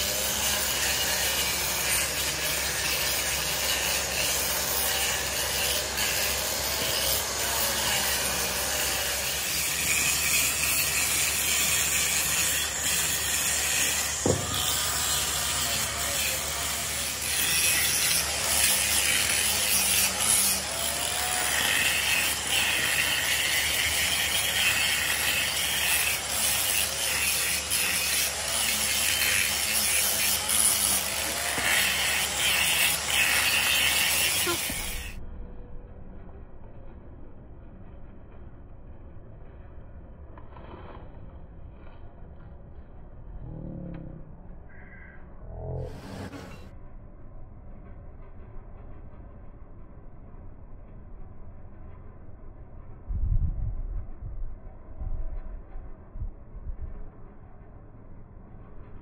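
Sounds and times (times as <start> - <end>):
angle grinder grinding steel: 0.0 - 35.2, 45.8 - 46.7.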